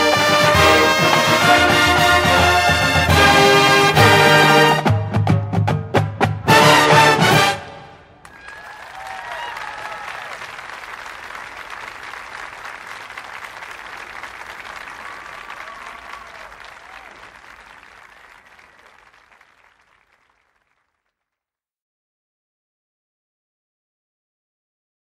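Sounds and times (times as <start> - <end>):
crowd applauding: 0.0 - 3.8, 8.2 - 21.2.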